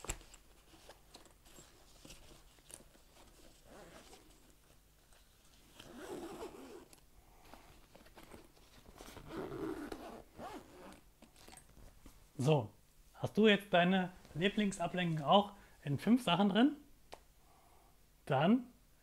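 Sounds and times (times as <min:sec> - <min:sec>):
fabric rustling: 0:00.0 - 0:12.3
zipper being drawn: 0:03.3 - 0:04.5, 0:05.6 - 0:07.0, 0:09.1 - 0:11.6.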